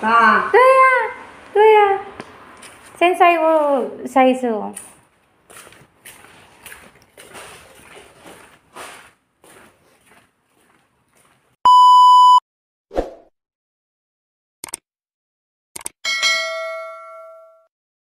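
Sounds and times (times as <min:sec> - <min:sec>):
electronic beep: 0:11.7 - 0:12.4
bell chime: 0:16.1 - 0:17.7.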